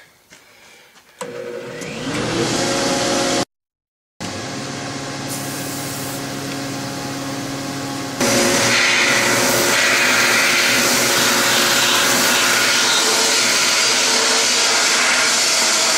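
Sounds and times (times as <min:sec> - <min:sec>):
machine hum: 0:04.2 - 0:15.9
sandblasting hiss: 0:05.3 - 0:06.2, 0:08.2 - 0:15.9.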